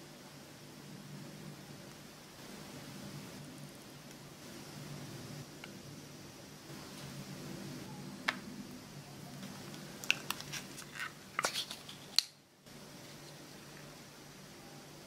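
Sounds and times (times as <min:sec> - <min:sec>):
low steady hum: 0:00.0 - 0:15.0
plastic cup clicks and crinkles: 0:09.7 - 0:12.4.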